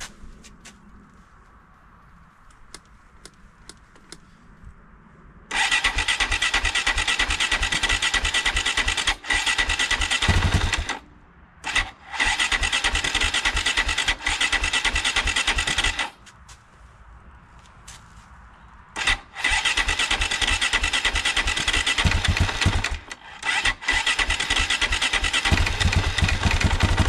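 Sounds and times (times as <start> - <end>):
motorcycle engine running: 9.8 - 10.9, 20.2 - 23.0, 24.2 - 27.0.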